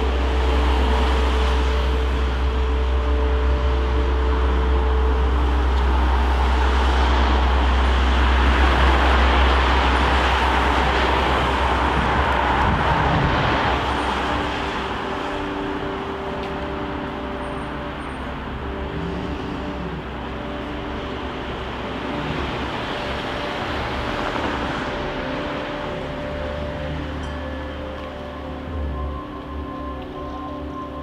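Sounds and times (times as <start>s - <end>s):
deep low rumble: 0.0s - 31.0s
passing vehicles: 0.0s - 31.0s.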